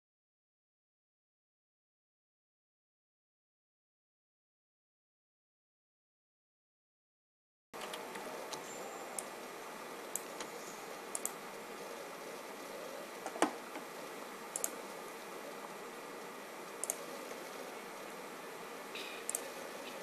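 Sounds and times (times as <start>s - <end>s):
room hiss: 7.8s - 20.0s
sparse sharp clicks: 10.1s - 11.6s, 14.5s - 15.0s, 15.6s - 17.5s, 19.0s - 20.0s.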